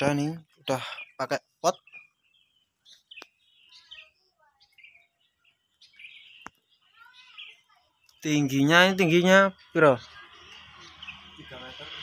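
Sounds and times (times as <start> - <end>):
faint bird chirps: 0.0 - 12.0
faint sharp clicks: 3.1 - 3.4, 6.4 - 6.6.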